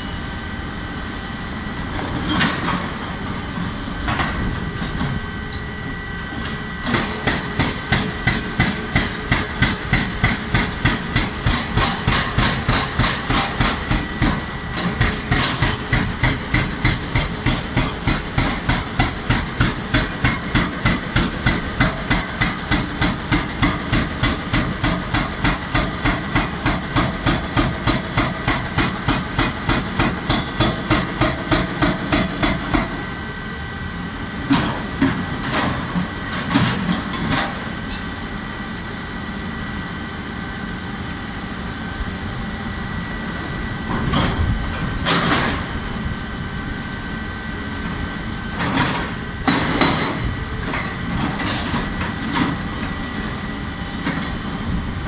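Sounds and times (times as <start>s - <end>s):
hydraulic breaker hammering rock: 6.4s - 33.1s, 48.6s - 53.2s.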